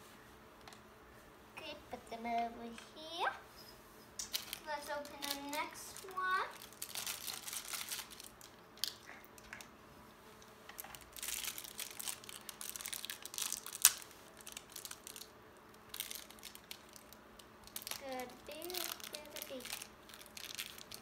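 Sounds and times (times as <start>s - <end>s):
plastic wrapper crinkling and tearing: 4.2s - 9.7s, 10.7s - 21.0s.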